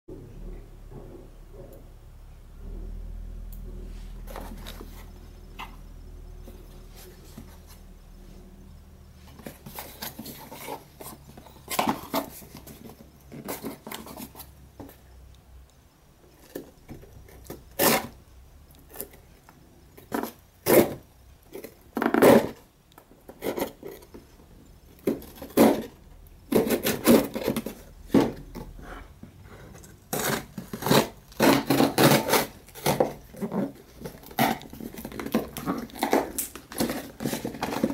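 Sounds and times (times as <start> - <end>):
blade slitting packing tape: 30.2 - 33.1.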